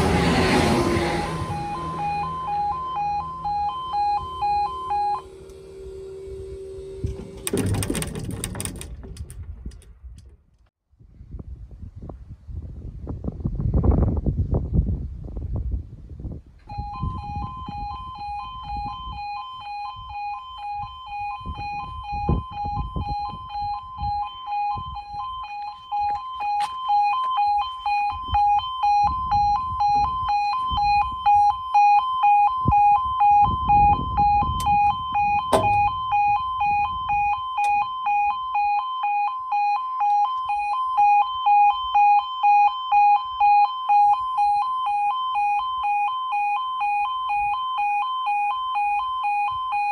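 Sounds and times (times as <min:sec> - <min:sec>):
level crossing alarm warble: 0:00.0 - 0:09.3, 0:16.7 - 0:49.9
wind rumble on microphone: 0:06.2 - 0:26.3, 0:27.5 - 0:38.4.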